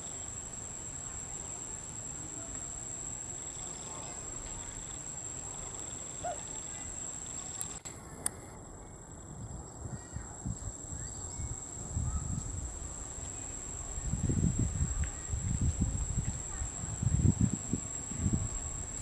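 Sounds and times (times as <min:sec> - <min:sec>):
insects buzzing: 0:00.0 - 0:19.0.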